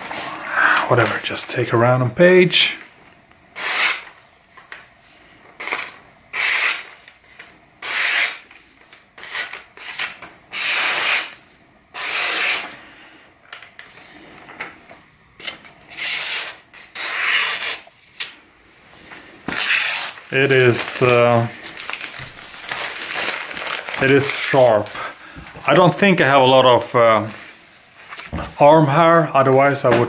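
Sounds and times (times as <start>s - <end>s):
knife slicing paper: 3.6s - 4.1s, 5.6s - 11.4s, 12.0s - 12.7s, 15.4s - 18.3s, 19.5s - 24.8s.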